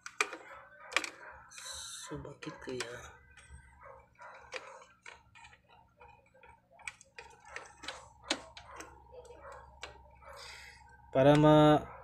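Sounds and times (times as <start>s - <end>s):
fingers tapping wires and connector: 4.3s - 10.0s, 11.2s - 11.7s.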